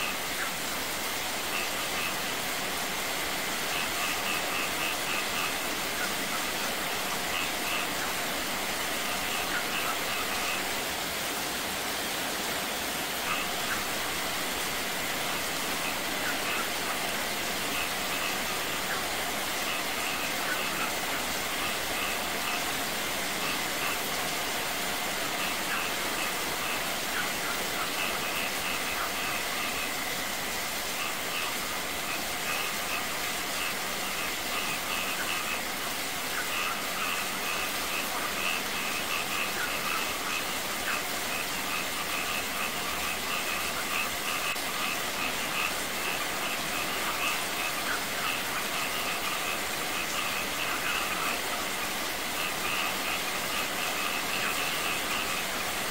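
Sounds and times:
rain falling on stone and water: 0:00.0 - 0:55.9
water spilling over small waterfall: 0:00.0 - 0:55.9.

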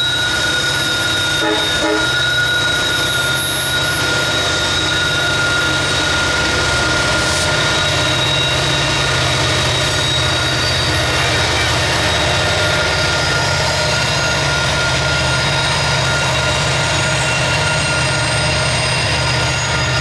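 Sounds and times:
deep locomotive engine rumble: 0:00.0 - 0:20.0
high whine: 0:00.0 - 0:20.0.

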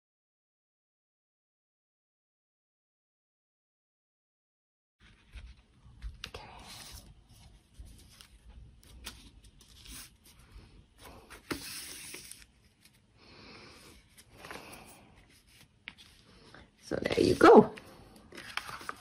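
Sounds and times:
stiff paper rustling and sliding: 0:06.6 - 0:13.1, 0:18.3 - 0:19.0.

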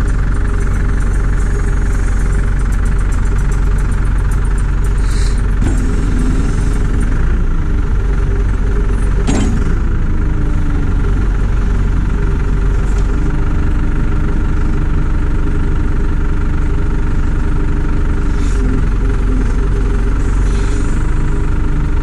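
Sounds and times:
hydraulic boom working: 0:00.0 - 0:21.5
diesel engine running: 0:00.0 - 0:22.0.

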